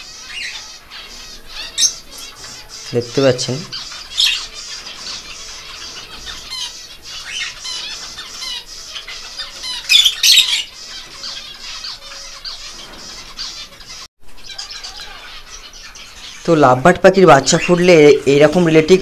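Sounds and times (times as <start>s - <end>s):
lovebirds chattering and squawking: 0.0s - 19.0s
shrill bird shrieks: 9.5s - 10.7s.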